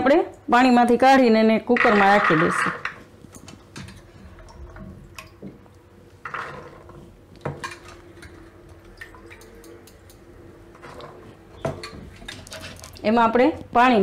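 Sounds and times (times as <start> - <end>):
chickpeas clattering into pot: 1.7 - 3.0
water dripping: 3.3 - 5.9, 7.4 - 13.1.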